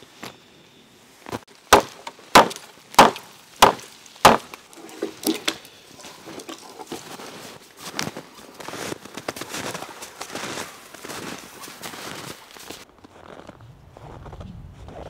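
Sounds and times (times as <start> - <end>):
rustling: 1.1 - 13.4
hatchet chopping wood: 1.7 - 5.7.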